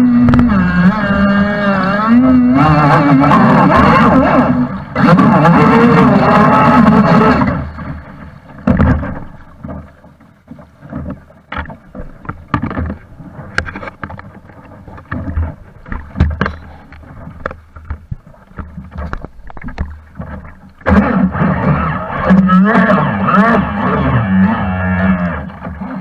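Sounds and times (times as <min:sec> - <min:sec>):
steady water rush: 0:00.0 - 0:26.0
water slapping against boat hull: 0:00.0 - 0:26.0
small splashes and knocks: 0:07.2 - 0:22.5.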